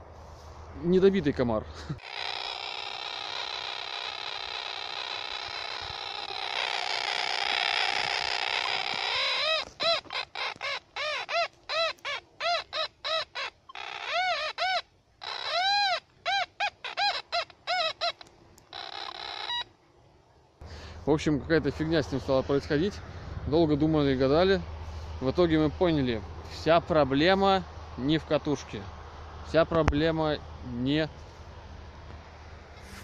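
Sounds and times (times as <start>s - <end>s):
metal detector warbling buzz: 2.0s - 19.6s
metal detector chirps: 2.0s - 19.7s.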